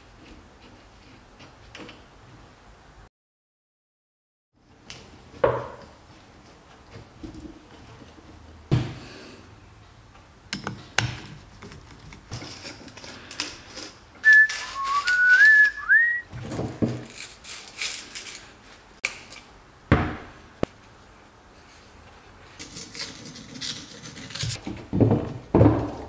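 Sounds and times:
high whistling squeal: 0:14.2 - 0:16.3.

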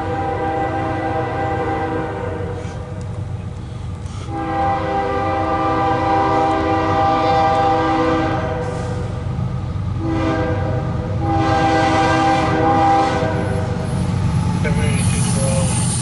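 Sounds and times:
locomotive air horn blasts: 0:00.0 - 0:02.9, 0:04.2 - 0:09.1, 0:10.0 - 0:13.8
low rumble of train: 0:00.0 - 0:16.0.

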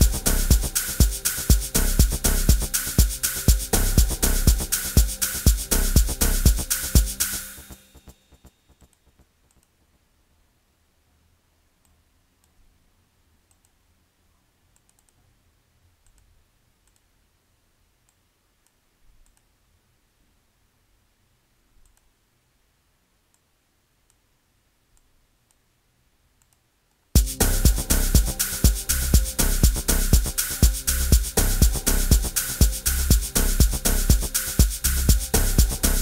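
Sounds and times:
computer mouse clicks: 0:08.8 - 0:09.8, 0:13.5 - 0:13.8, 0:14.7 - 0:15.2, 0:16.0 - 0:17.1, 0:18.0 - 0:19.5, 0:21.8 - 0:22.1, 0:26.4 - 0:27.0.

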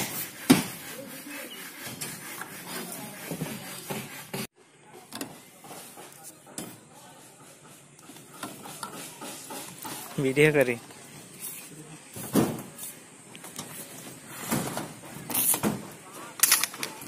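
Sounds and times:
voices in background: 0:02.6 - 0:17.0.

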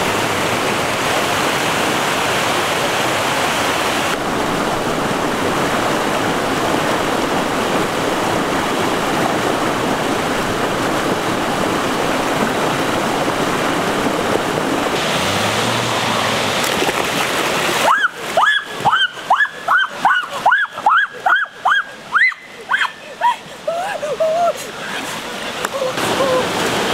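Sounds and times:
stream rushing over boulders: 0:00.0 - 0:26.9
splashing in a pool: 0:07.9 - 0:26.9
person crying out: 0:17.8 - 0:25.1, 0:25.7 - 0:26.6.

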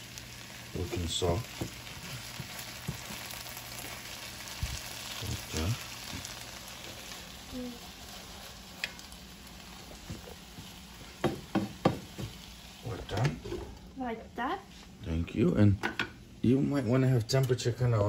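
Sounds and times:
food sizzling in a frying pan: 0:00.0 - 0:18.0.

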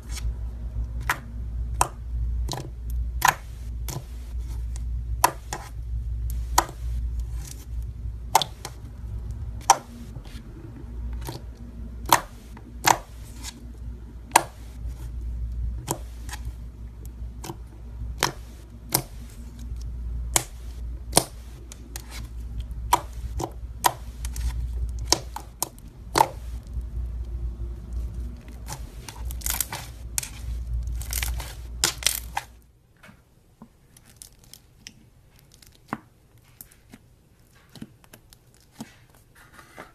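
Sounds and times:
low rumble: 0:00.0 - 0:32.6
slime squishing and popping: 0:11.2 - 0:13.6, 0:15.8 - 0:27.3, 0:28.0 - 0:32.6.

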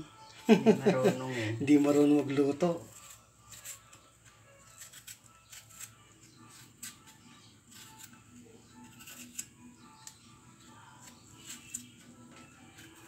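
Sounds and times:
knife scraping potato skin: 0:01.6 - 0:10.2, 0:10.9 - 0:12.0, 0:12.6 - 0:13.0.

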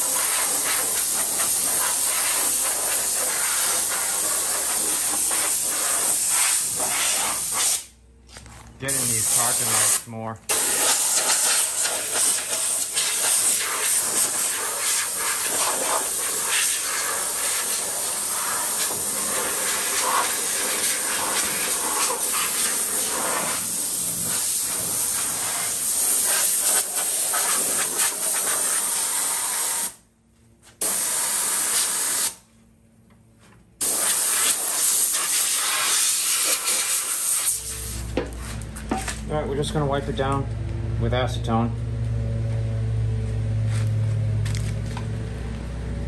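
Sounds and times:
air blow gun hissing: 0:00.0 - 0:07.9, 0:08.9 - 0:30.0, 0:30.8 - 0:32.4, 0:33.8 - 0:38.1.

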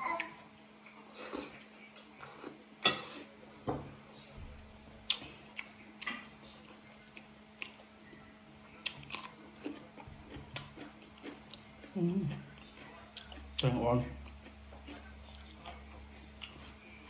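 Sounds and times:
cucumber crunching: 0:08.8 - 0:16.8.

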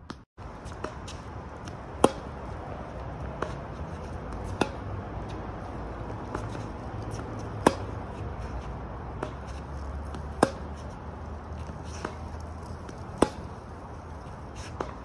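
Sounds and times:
tennis ball struck by racket: 0:00.0 - 0:15.0.

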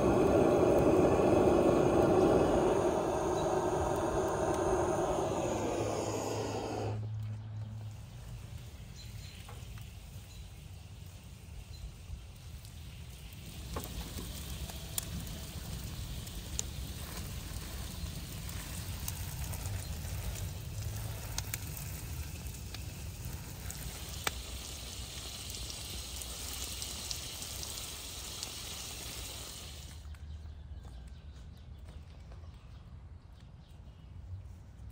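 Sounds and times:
hose spraying water on leaves: 0:00.0 - 0:07.0, 0:07.8 - 0:30.0
wood fire crackling and popping: 0:00.0 - 0:07.0, 0:08.2 - 0:30.3.

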